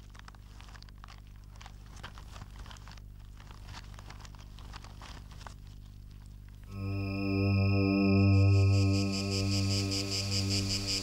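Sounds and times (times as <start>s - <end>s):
soil crackling and crumbling: 0.0s - 6.8s.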